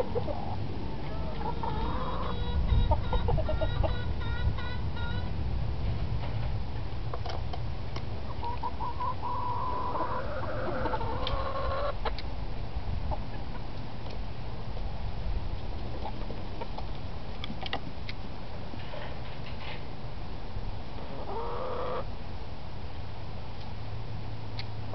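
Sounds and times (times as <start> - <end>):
chickens clucking: 0.0 - 5.3, 8.2 - 12.2, 21.0 - 22.1
steady low rumble: 0.0 - 18.8.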